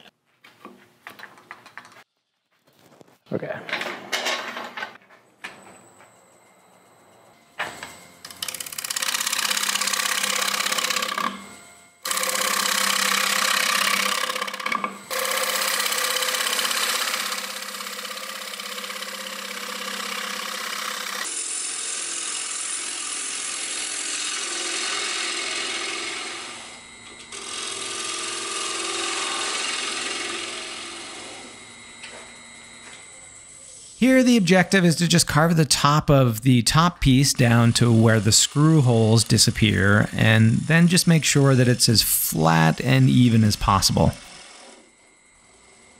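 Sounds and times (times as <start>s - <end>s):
wood lathe gouge cutting: 8.2s - 11.4s, 12.0s - 31.7s, 37.3s - 44.9s.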